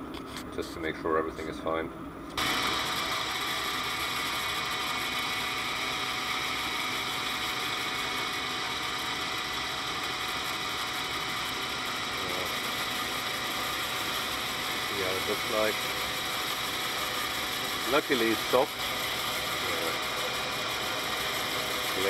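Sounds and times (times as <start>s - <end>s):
metal lathe whining: 2.4s - 22.0s.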